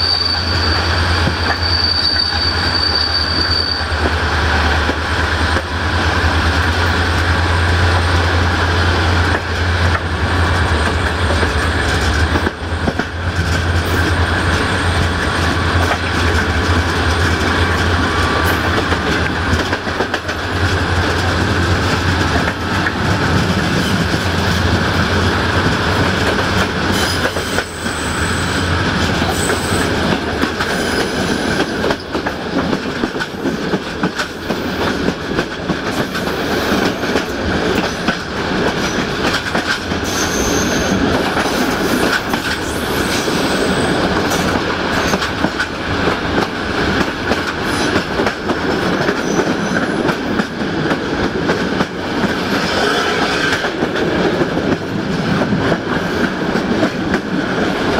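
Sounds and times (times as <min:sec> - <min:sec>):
high-pitched wheel squeals: 0:00.0 - 0:04.0, 0:40.0 - 0:41.0
train rumble: 0:00.0 - 0:57.9
wheels clacking over rail joints: 0:04.0 - 0:27.9, 0:28.8 - 0:57.9.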